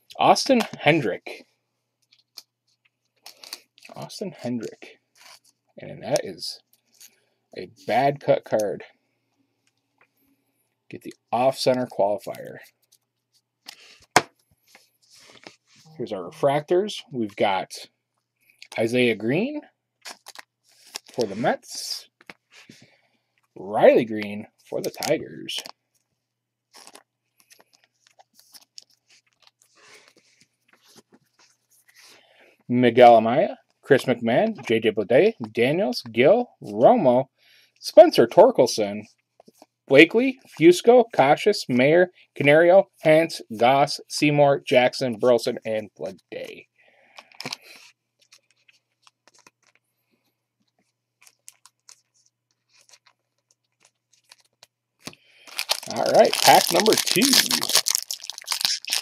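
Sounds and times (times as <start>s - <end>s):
plastic card sleeve crinkling: 2.0s - 4.0s, 4.6s - 5.7s, 20.0s - 22.8s, 24.1s - 26.1s, 26.7s - 32.2s, 47.2s - 49.9s, 50.6s - 59.0s
soft rustle: 12.6s - 16.0s.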